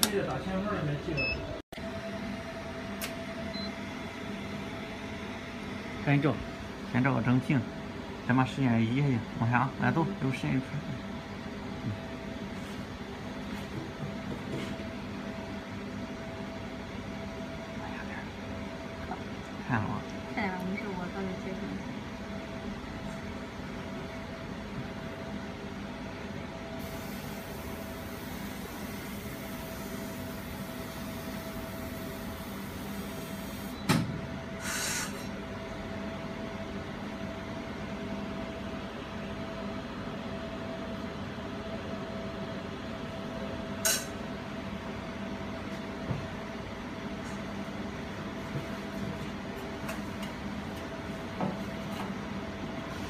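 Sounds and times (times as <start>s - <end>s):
laser welding machine humming: 1.8s - 13.3s, 20.2s - 36.1s, 43.6s - 44.5s
brief hiss: 34.6s - 35.2s
sharp click: 43.8s - 44.2s.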